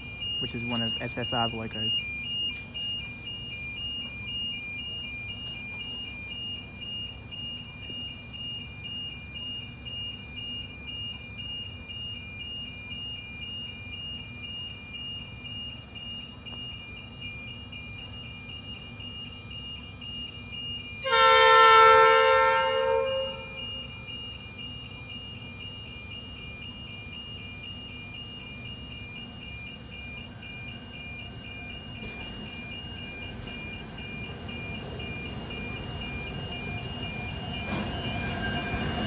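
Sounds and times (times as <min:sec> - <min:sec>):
level crossing alarm: 0:00.0 - 0:39.0
locomotive chime horn: 0:21.0 - 0:24.0.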